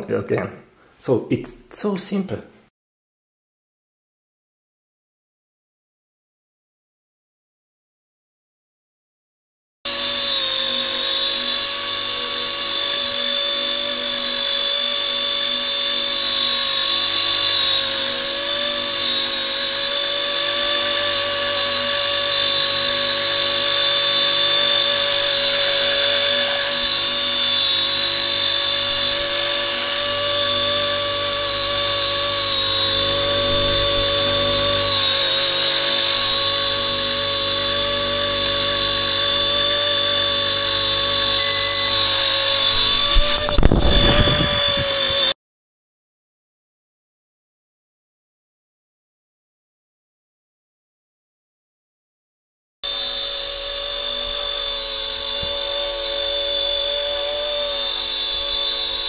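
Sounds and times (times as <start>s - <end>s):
helicopter motor and rotor whine: 20.3s - 36.6s, 40.2s - 45.2s.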